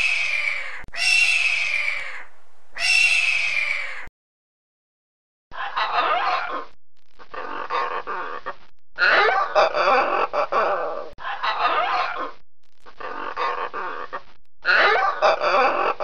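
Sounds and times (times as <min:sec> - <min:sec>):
macaw squawking: 0:00.0 - 0:04.1.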